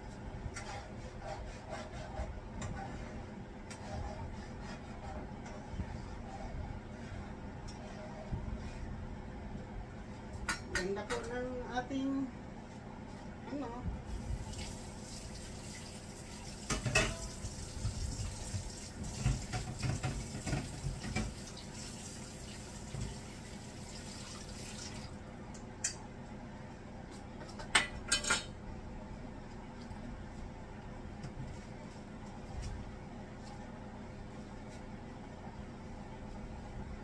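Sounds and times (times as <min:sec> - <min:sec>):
dishes and utensils clattering: 0:16.7 - 0:17.4, 0:19.2 - 0:21.4, 0:27.6 - 0:28.6.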